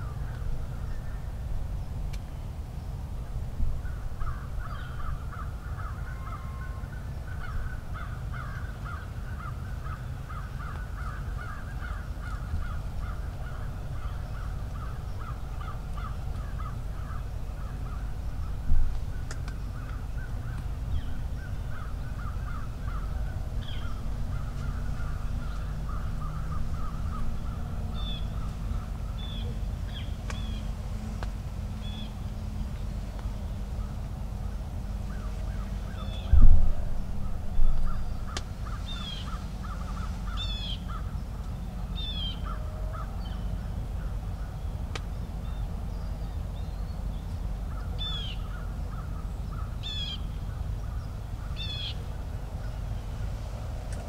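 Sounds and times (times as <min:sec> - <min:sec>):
steady low rumble: 0:00.0 - 0:54.0
crows cawing: 0:04.2 - 0:18.1, 0:21.4 - 0:28.6, 0:38.0 - 0:41.1.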